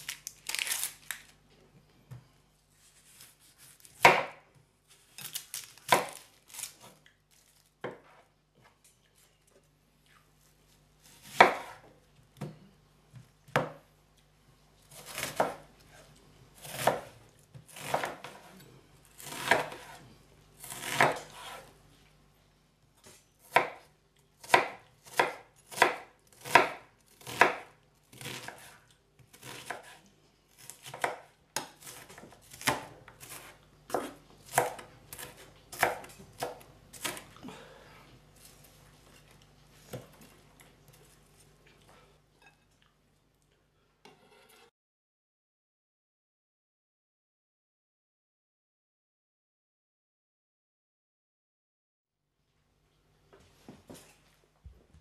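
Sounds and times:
knife chopping onion on board: 0:03.6 - 0:04.4, 0:05.8 - 0:06.2, 0:11.2 - 0:12.5, 0:14.9 - 0:16.0, 0:16.6 - 0:18.6, 0:19.2 - 0:20.0, 0:20.6 - 0:21.7, 0:23.4 - 0:30.0, 0:30.6 - 0:37.2.

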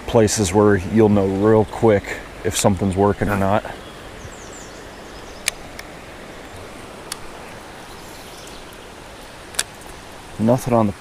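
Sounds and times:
rain falling on a river: 0:00.0 - 0:11.0
sharp clicks: 0:05.4 - 0:05.9, 0:07.0 - 0:07.3.

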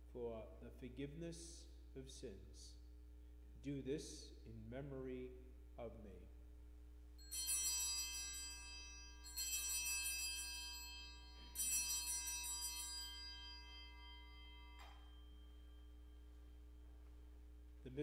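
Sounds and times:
hand bells jangling: 0:07.2 - 0:17.2.

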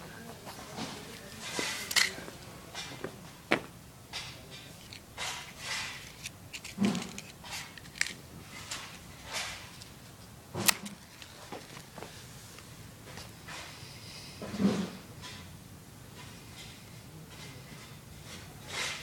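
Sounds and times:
handling rustle: 0:00.4 - 0:03.0, 0:04.6 - 0:13.4.

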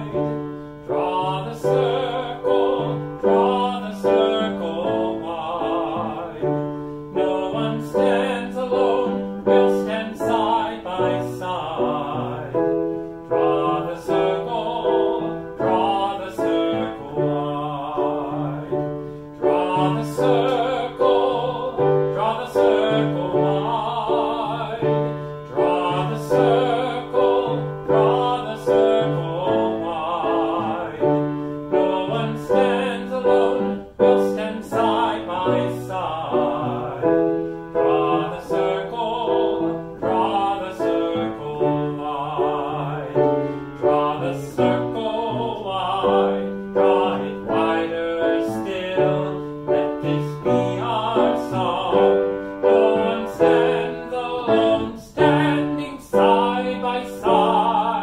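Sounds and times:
grand piano: 0:00.0 - 0:58.0
man singing with vibrato: 0:00.0 - 0:58.0.

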